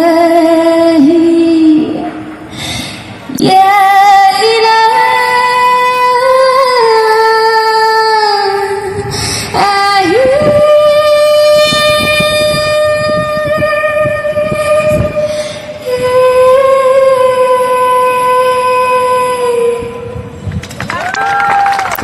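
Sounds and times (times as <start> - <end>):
singer breathing in: 2.5 - 3.3, 9.1 - 9.6, 15.2 - 15.8
woman singing long held notes: 3.4 - 20.2.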